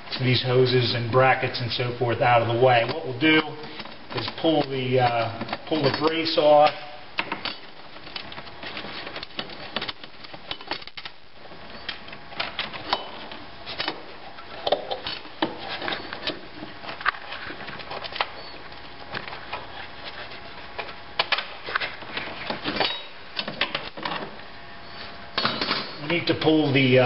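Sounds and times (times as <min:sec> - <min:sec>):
hands working hoses and fittings: 0:01.2 - 0:26.9.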